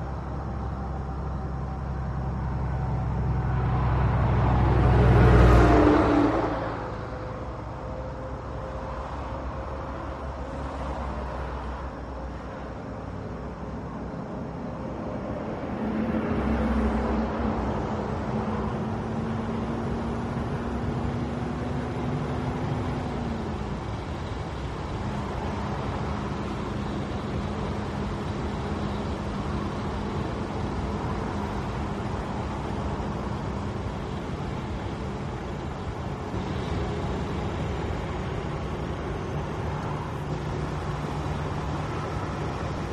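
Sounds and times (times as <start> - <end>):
tyre and road noise: 0.0 - 42.9
truck diesel engine running: 16.7 - 42.9.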